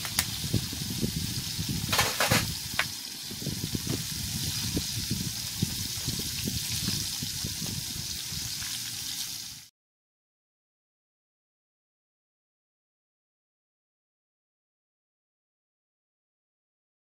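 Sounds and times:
fish frying in hot oil: 0:00.0 - 0:09.7.

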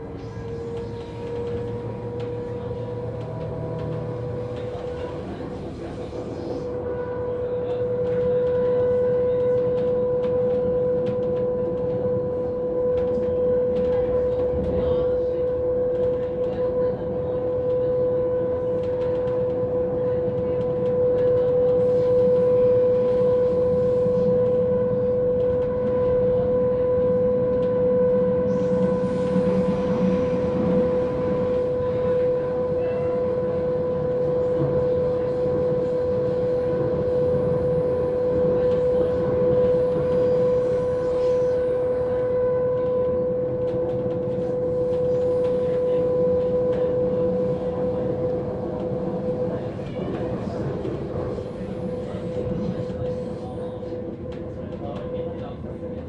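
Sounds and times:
train running gear rumble: 0:00.0 - 0:56.0
high-pitched hum: 0:26.8 - 0:35.1.

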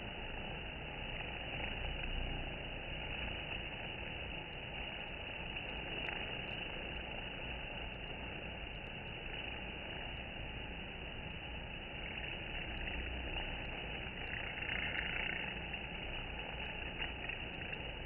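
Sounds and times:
honeybees droning: 0:00.0 - 0:18.0
faint high ticks: 0:00.1 - 0:18.0.

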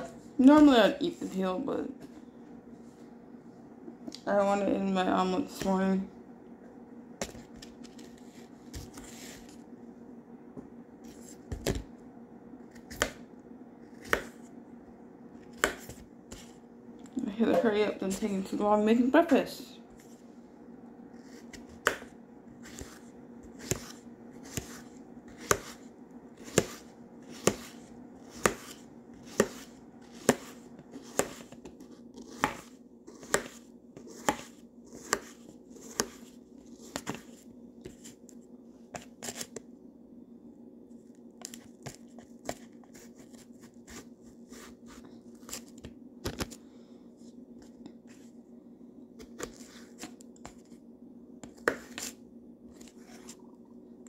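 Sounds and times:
knife chopping on cutting board: 0:14.0 - 0:14.4, 0:26.4 - 0:31.5, 0:32.2 - 0:36.2.

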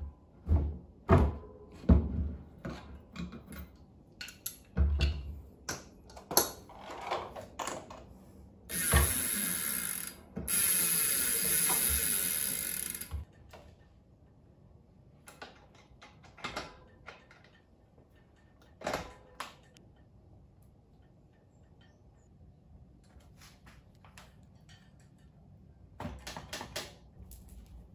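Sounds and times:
freehub ratchet buzzing: 0:08.7 - 0:13.3.

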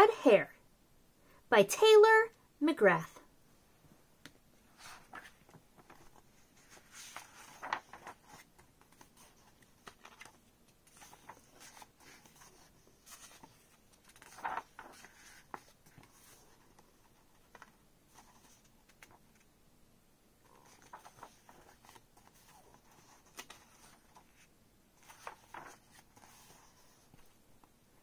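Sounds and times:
paper pages rustling: 0:04.7 - 0:19.5, 0:20.5 - 0:27.4
page flips: 0:04.8 - 0:19.5, 0:20.5 - 0:27.4.

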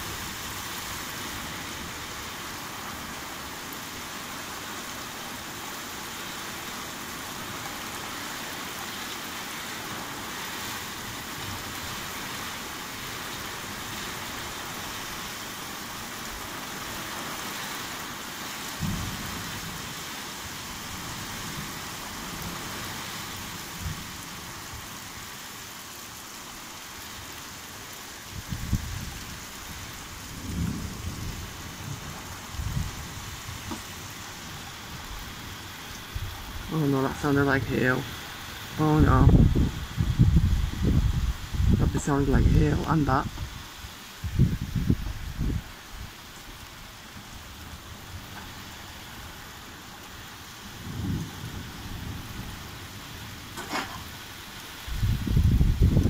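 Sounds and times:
heavy rain hissing on a caravan: 0:00.0 - 0:56.0
low thunder rumbles and thumps: 0:18.8 - 0:20.0, 0:23.7 - 0:24.9, 0:28.3 - 0:35.4, 0:39.0 - 0:46.0, 0:50.7 - 0:54.2, 0:54.8 - 0:56.0.

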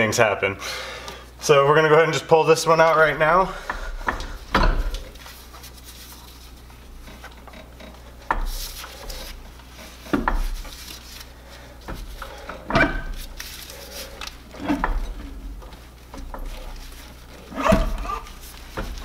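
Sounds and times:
metal clunks and rubbing: 0:03.5 - 0:05.7, 0:06.7 - 0:10.8, 0:11.8 - 0:13.4, 0:14.0 - 0:19.0.

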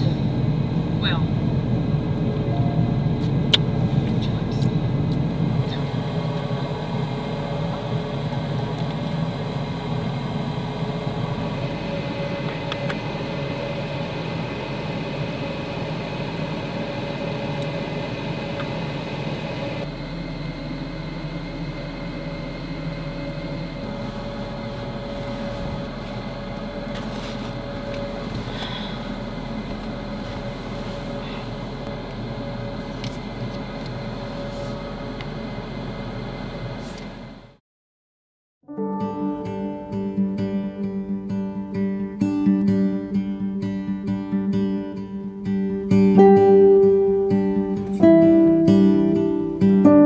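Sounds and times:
motor hum with faint whine: 0:00.0 - 0:37.6.

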